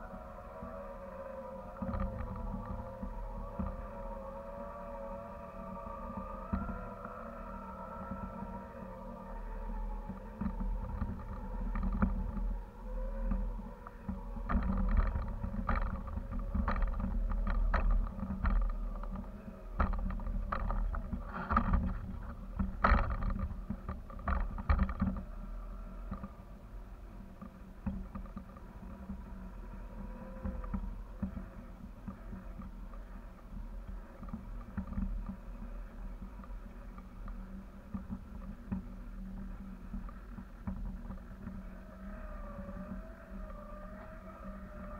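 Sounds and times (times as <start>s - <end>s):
wind buffeting microphone: 0.0s - 44.9s
sharp clicks and rattles: 13.3s - 25.3s.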